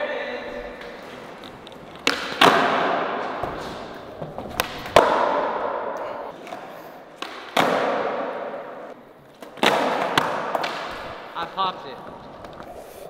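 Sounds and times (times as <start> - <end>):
skateboard pops and landings: 2.0 - 6.0, 7.2 - 8.6, 9.4 - 11.2.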